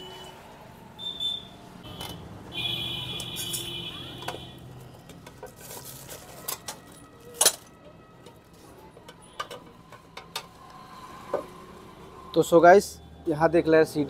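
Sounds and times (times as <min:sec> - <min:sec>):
clicks and rustling of wrapping: 0:05.0 - 0:10.4.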